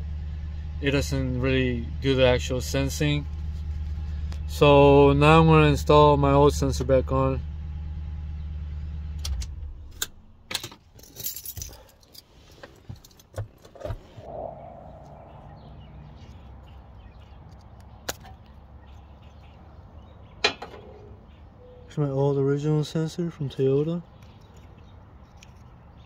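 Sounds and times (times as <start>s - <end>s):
truck engine idling: 0.0s - 10.5s, 14.2s - 21.9s.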